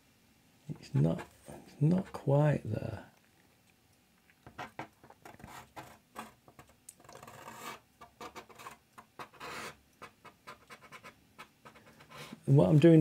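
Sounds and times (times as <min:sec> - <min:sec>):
brush pen scratching on paper: 0:00.7 - 0:02.2, 0:04.6 - 0:12.4.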